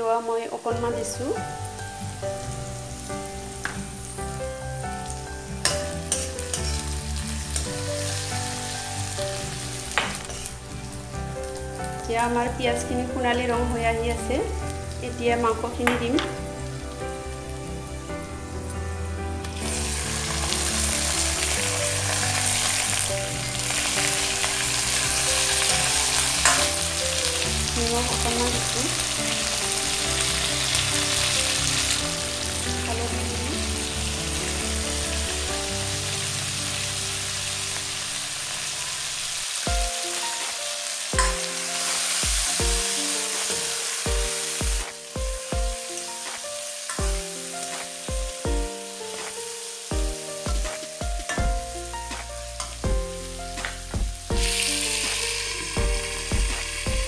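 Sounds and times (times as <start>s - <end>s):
chicken sizzling in oil: 0.1s - 57.0s
background music with a beat: 39.7s - 57.0s.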